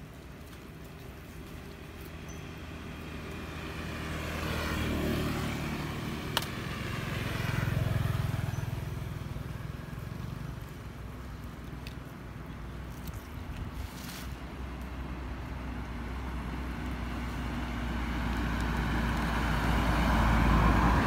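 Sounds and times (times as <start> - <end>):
vehicle engine passing by: 2.0 - 10.8, 15.2 - 21.0.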